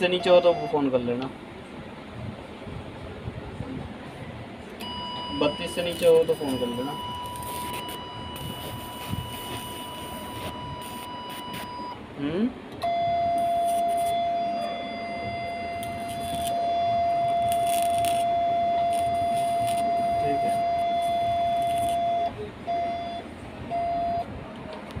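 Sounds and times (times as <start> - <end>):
high electronic beep: 0.0 - 0.8, 4.8 - 12.0, 12.8 - 24.3
short beeps: 0.0 - 1.0, 4.8 - 12.0, 12.8 - 24.3.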